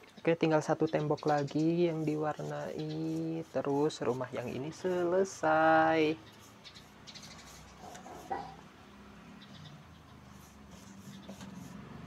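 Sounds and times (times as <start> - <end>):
paintbrush strokes on wood: 1.3 - 8.6, 10.3 - 12.0.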